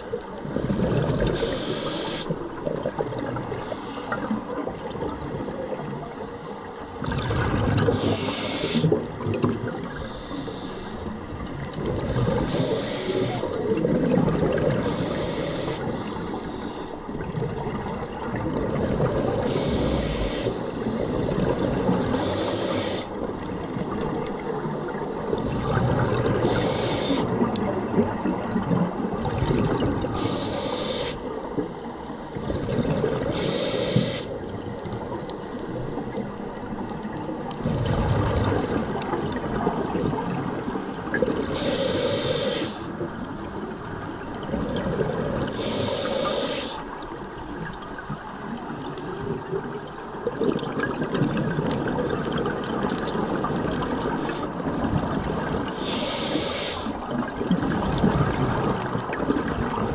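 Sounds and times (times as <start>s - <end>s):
regulator hiss on inhale: 1.2s - 2.6s, 3.5s - 4.5s, 5.9s - 6.8s, 7.9s - 9.0s, 9.8s - 11.2s, 12.3s - 13.6s, 14.8s - 17.1s, 18.9s - 23.3s, 24.3s - 25.7s, 26.4s - 27.4s, 30.1s - 32.5s, 33.3s - 34.4s, 41.4s - 43.0s, 45.4s - 47.0s, 53.4s - 54.6s, 55.7s - 57.0s.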